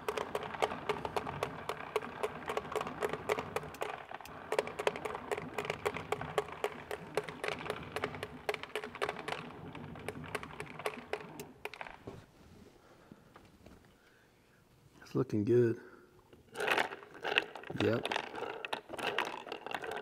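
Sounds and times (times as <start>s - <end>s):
pellet applicator clicking rapidly: 0.0s - 12.1s, 16.5s - 20.0s.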